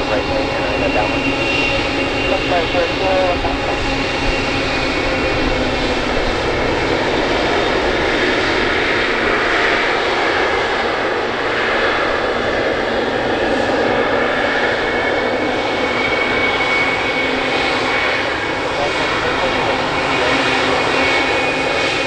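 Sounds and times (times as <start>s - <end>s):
jet engines running: 0.0s - 22.0s.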